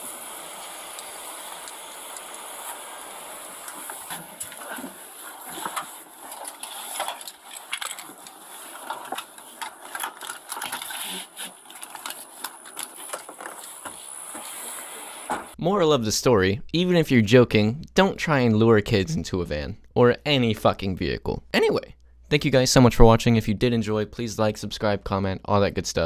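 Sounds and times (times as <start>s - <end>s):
steady hiss: 0.0s - 15.6s.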